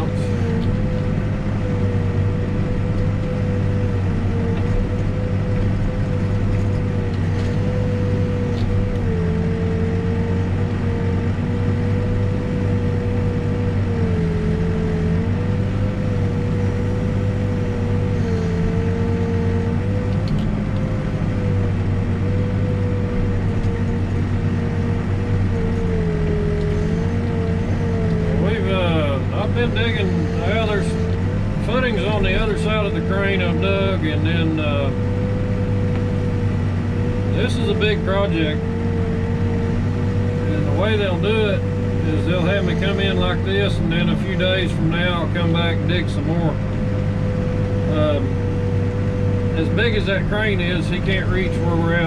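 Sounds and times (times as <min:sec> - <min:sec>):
backhoe diesel engine running: 0:00.0 - 0:52.0.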